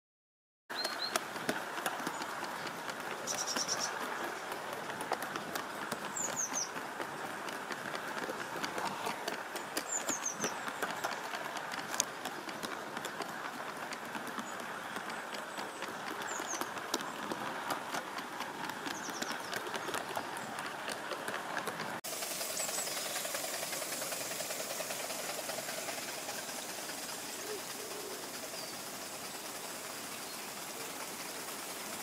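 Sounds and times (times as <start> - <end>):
bird chirping: 3.2 - 4.5, 6.1 - 7.3, 9.6 - 11.2, 18.8 - 20.6, 22.4 - 23.9, 24.7 - 32.0
model train clattering: 21.3 - 32.0.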